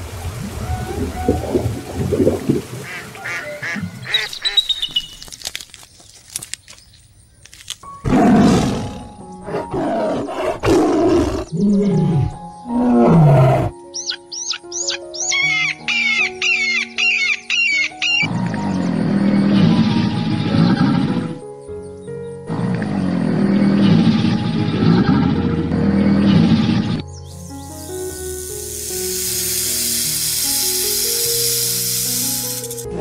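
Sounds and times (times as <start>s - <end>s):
music: 7.5s - 33.0s.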